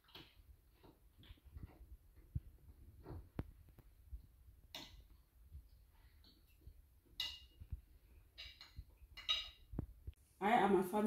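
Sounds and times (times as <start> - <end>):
cutlery clinking on plates: 8.3 - 9.7.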